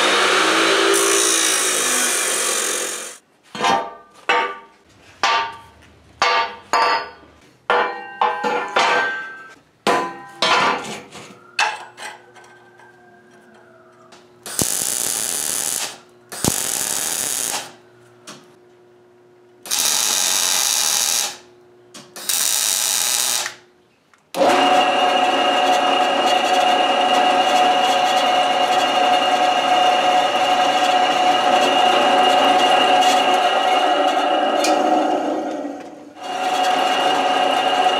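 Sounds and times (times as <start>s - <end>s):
drill press cutting steel: 0.0s - 3.2s, 24.4s - 37.9s
harsh metalworking noise bursts: 0.0s - 3.2s, 14.5s - 17.8s, 19.7s - 21.4s, 24.4s - 37.9s.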